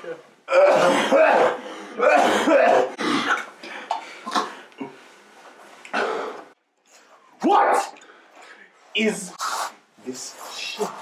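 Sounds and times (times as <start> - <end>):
man coughing and spluttering: 0.5 - 4.6.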